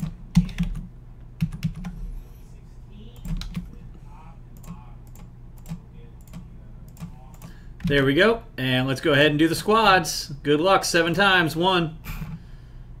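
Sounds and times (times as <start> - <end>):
computer keyboard typing: 0.0 - 2.0, 3.2 - 3.7
low steady hum: 0.0 - 13.0.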